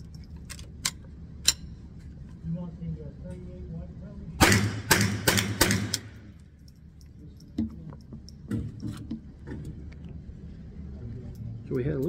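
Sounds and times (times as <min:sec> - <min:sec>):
gunshot echo: 0:04.4 - 0:06.2.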